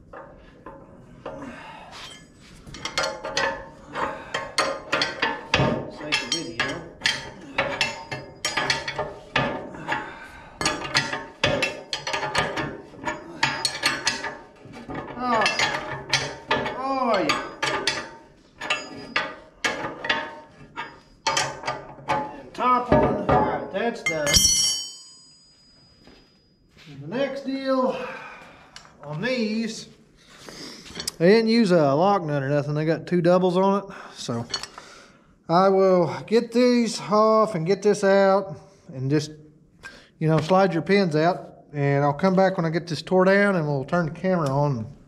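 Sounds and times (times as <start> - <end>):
metal bolts and wrench clinking: 2.0 - 25.9, 30.9 - 31.2, 34.3 - 34.8.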